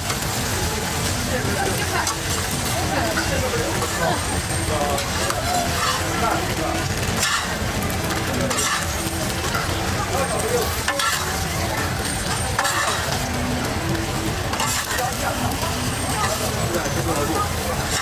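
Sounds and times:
buns sizzling on griddle: 0:00.0 - 0:18.0
metal spatula scraping pan: 0:02.0 - 0:07.7, 0:08.3 - 0:13.5, 0:14.5 - 0:18.0.

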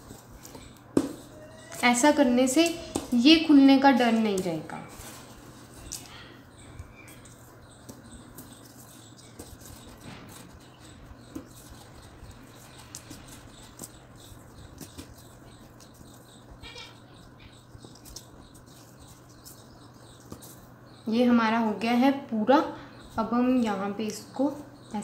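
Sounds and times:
steady low hum: 0:00.0 - 0:25.0
twine scratching while wound: 0:05.0 - 0:20.8.

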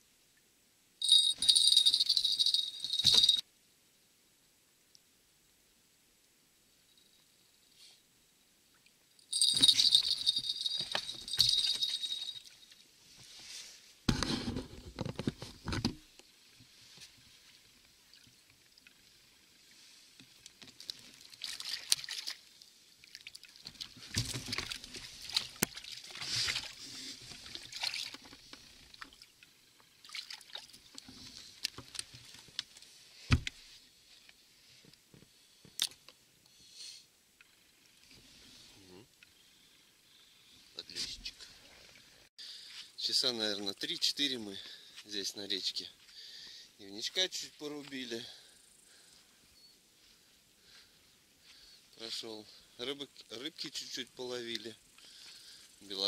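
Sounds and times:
small bell jingling: 0:01.0 - 0:03.4, 0:09.2 - 0:12.7.

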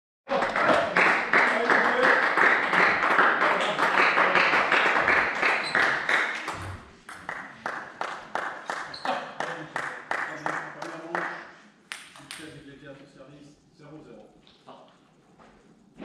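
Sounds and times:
group clapping rhythmically: 0:00.3 - 0:12.6.

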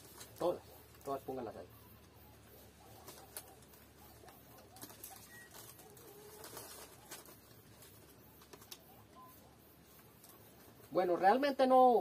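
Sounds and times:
plastic wrapper crinkling: 0:00.0 - 0:01.1, 0:02.8 - 0:09.1
dove cooing: 0:00.0 - 0:10.6.

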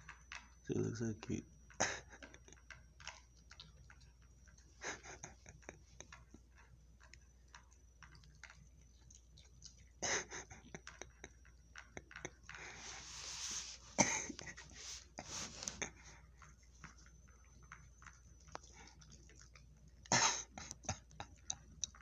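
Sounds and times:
dog chewing crunchy food: 0:00.0 - 0:22.0
rustling noise: 0:12.6 - 0:15.8.

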